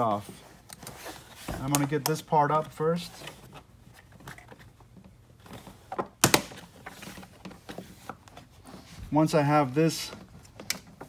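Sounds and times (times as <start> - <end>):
handling noise and small clicks: 10.1 - 11.0.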